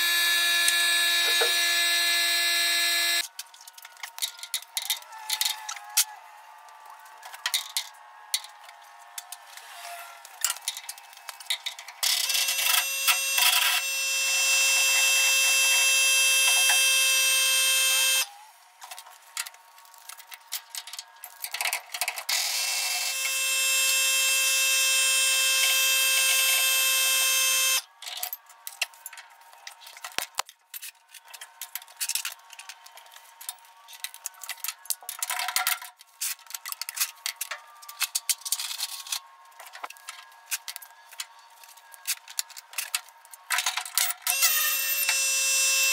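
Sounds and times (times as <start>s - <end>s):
pneumatic impact wrench: 0.0s - 3.2s, 12.0s - 18.3s, 22.3s - 27.8s
tools and metal parts clinking: 3.2s - 6.1s, 10.4s - 13.8s, 18.8s - 22.3s, 28.0s - 45.2s.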